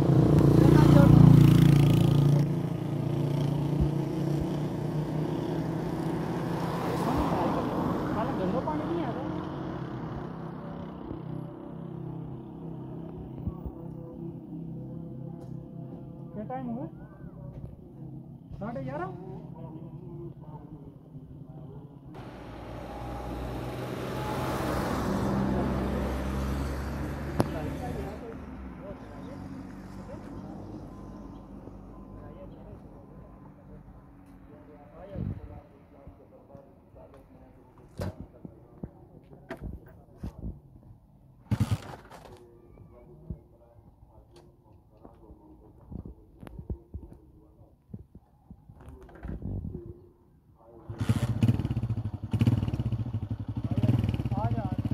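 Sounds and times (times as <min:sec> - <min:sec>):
vehicle passing by: 0:00.0 - 0:13.2, 0:22.2 - 0:37.1.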